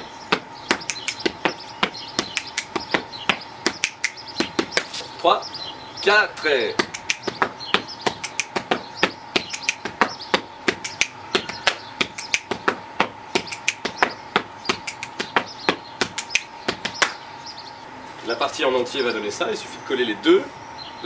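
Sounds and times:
hand claps: 0.3 - 5.0, 6.8 - 17.2
slaps on chest and thighs: 0.3 - 5.0, 6.8 - 17.2
finger clicks: 0.7 - 1.5, 2.2 - 2.8, 3.7 - 4.9, 6.8 - 7.5, 8.2 - 8.8, 9.4 - 10.1, 10.7 - 12.7, 13.4 - 14.1, 14.7 - 15.5, 16.1 - 17.2.

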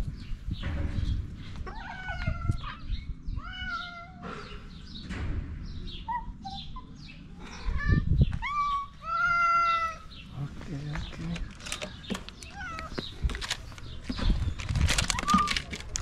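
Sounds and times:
cats meowing: 1.6 - 4.5, 7.6 - 10.1, 12.4 - 13.3, 15.0 - 15.9.

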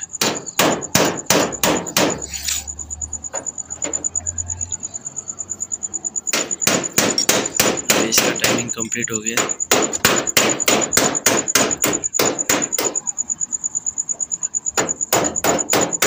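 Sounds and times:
impact gun hammering: 0.2 - 2.2, 6.3 - 8.7, 9.4 - 13.0, 14.8 - 16.0.

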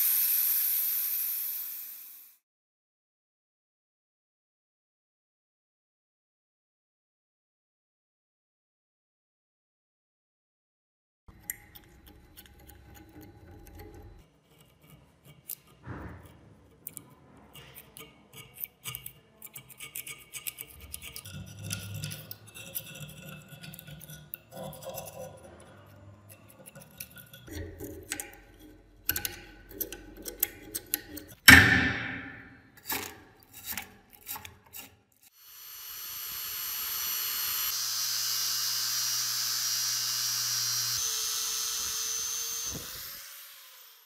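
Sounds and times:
scraper blade scraping rusted iron: 11.3 - 35.4
loud metal hit: 31.5 - 32.7.

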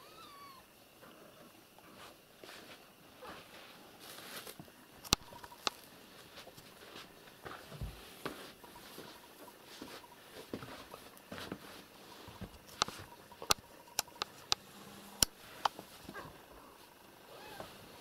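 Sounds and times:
cats pattering on carpet: 1.9 - 13.2
sharp clicks: 12.6 - 15.8.

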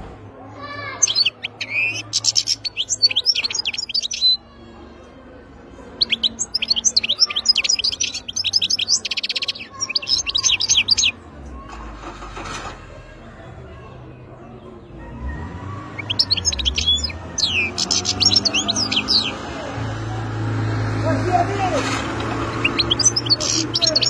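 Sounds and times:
goldfinch singing: 1.0 - 4.4, 6.0 - 11.2, 15.8 - 19.5, 22.2 - 24.0.

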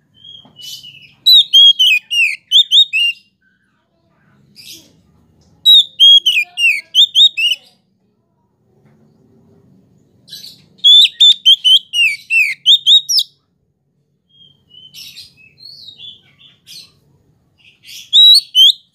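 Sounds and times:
bird whistling song: 0.1 - 3.3, 5.7 - 7.6, 10.3 - 13.4, 14.3 - 17.0, 17.6 - 18.9.

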